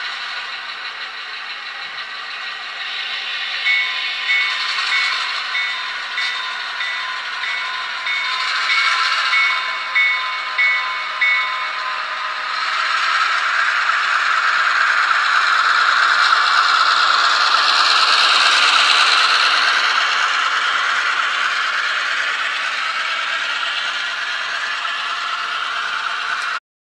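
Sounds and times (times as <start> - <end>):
train wheels clattering over rail joints: 0.0 - 26.6
locomotive bell ringing: 1.8 - 12.8.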